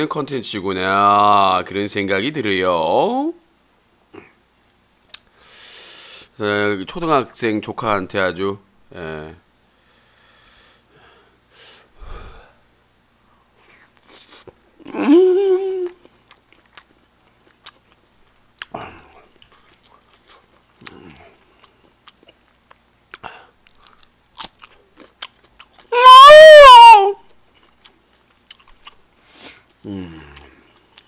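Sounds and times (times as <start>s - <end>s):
mouth clicks and smacks: 5.1s - 5.3s
person chewing food: 15.8s - 26.0s, 27.3s - 31.0s.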